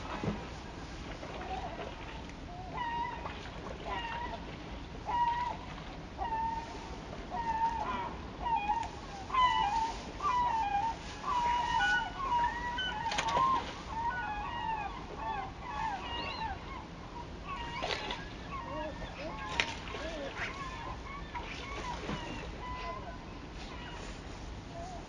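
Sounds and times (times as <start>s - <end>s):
gulls calling: 0.0s - 25.0s.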